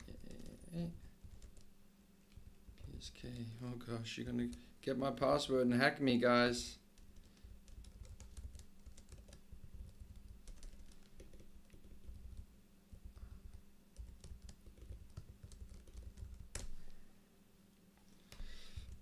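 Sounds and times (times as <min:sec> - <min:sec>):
laptop keyboard typing: 0:00.0 - 0:01.7, 0:07.0 - 0:16.9
faint steady hum: 0:00.0 - 0:19.0.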